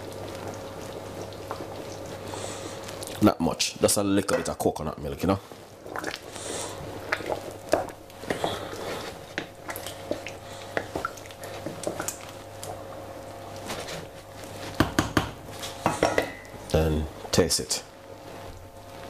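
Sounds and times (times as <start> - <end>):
spoon knocking against pot: 14.8 - 16.4.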